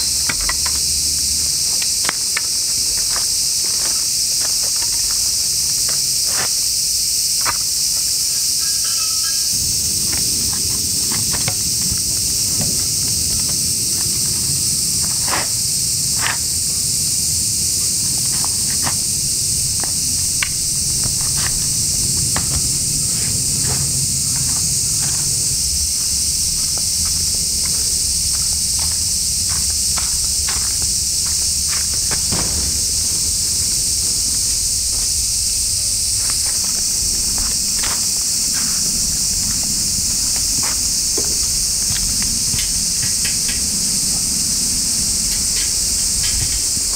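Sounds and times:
faint footsteps: 0.0s - 8.5s, 9.5s - 46.9s
high-pitched insect chorus: 0.0s - 46.9s.

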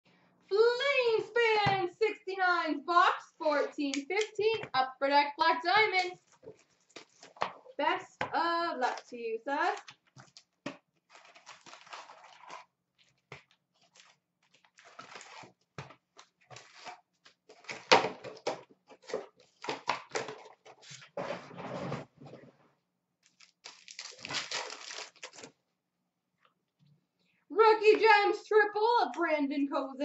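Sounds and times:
paper rustling: 9.7s - 22.0s
paper tearing: 11.0s - 13.2s, 13.8s - 15.6s, 23.3s - 25.5s
wrappers crinkling: 11.1s - 15.5s, 23.2s - 25.5s.

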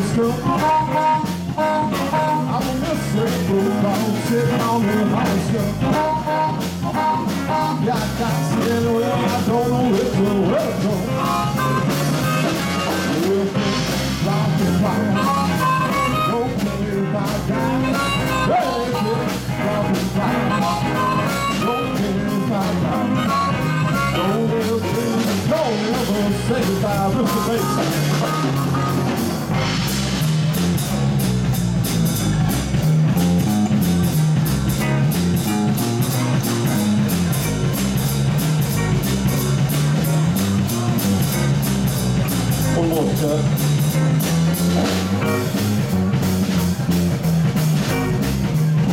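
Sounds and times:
harmonica: 0.0s - 9.7s, 10.9s - 29.6s
person singing: 0.0s - 29.1s
bass and drum kit: 0.0s - 48.9s
electric guitars: 0.0s - 48.9s.

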